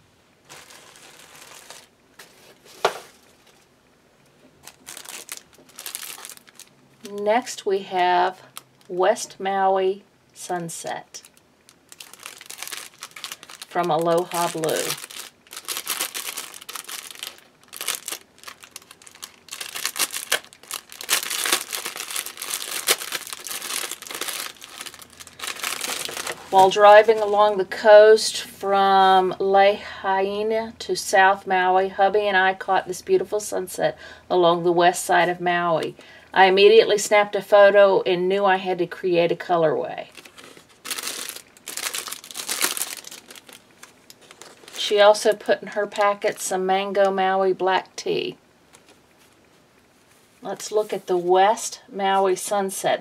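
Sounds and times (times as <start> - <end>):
plastic packaging crinkling: 0.4 - 3.7, 4.6 - 7.4, 11.1 - 27.6, 40.0 - 46.4.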